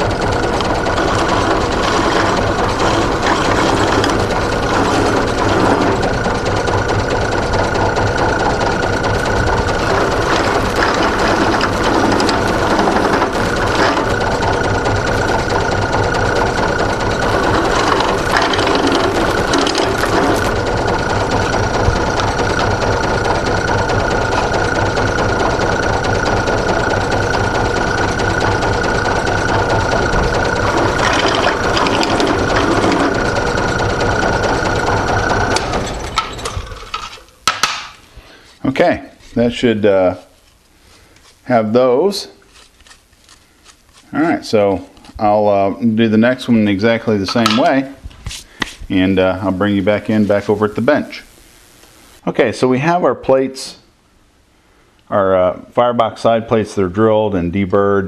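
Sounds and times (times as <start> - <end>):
drill bit cutting metal: 0.0 - 37.1
drill press motor hum: 0.0 - 38.4.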